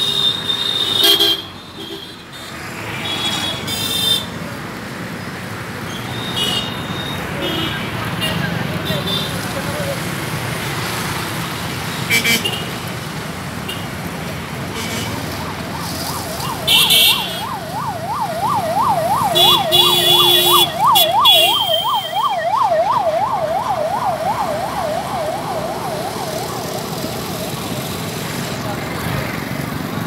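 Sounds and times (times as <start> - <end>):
car horn honks: 0.0 - 2.2, 16.7 - 17.4, 19.3 - 22.2
traffic noise: 0.0 - 30.0
siren yelping: 15.4 - 28.2.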